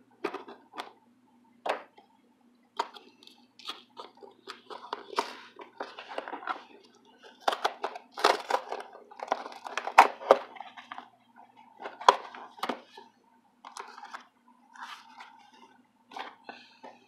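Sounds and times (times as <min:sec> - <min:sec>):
cardboard scraping and crinkling: 0:14.8 - 0:16.4.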